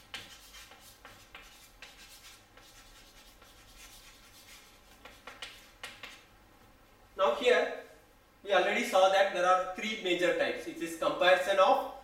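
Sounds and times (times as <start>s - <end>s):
chalk scratching on chalkboard: 0.0s - 6.3s.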